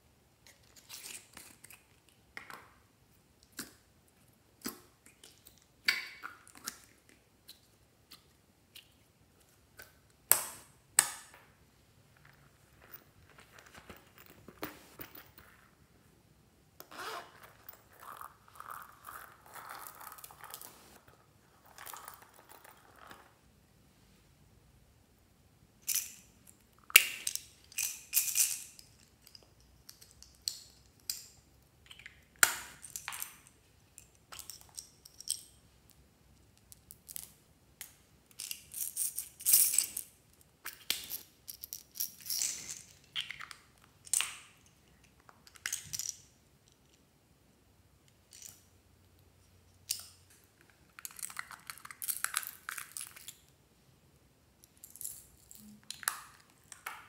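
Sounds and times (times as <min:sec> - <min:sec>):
plastic beads rattling: 0:17.3 - 0:20.8
plastic capsules popping open: 0:49.9 - 0:53.4, 0:54.9 - 0:57.0.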